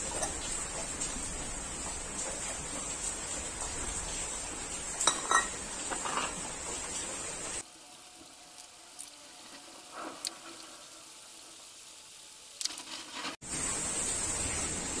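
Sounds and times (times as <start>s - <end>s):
metal cover clinking: 5.0s - 6.3s.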